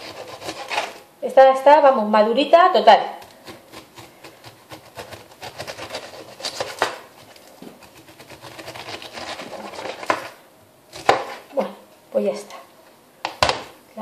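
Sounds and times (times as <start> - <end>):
knife crunching through pineapple: 0.0 - 1.0, 3.2 - 11.5.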